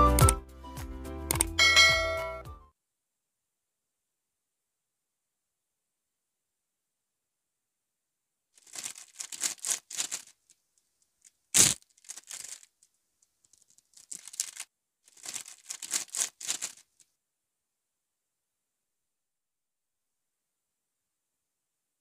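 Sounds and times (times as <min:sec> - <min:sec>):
wrapper ripping: 0:08.6 - 0:10.5, 0:11.5 - 0:12.8, 0:13.5 - 0:17.0
snack wrapper crinkling: 0:08.6 - 0:10.6, 0:11.2 - 0:17.0.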